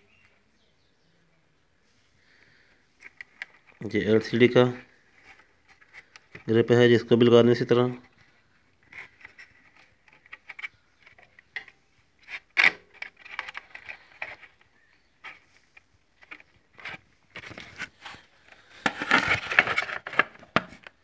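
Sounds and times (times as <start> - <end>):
small parts clicking and scraping: 8.0 - 20.9.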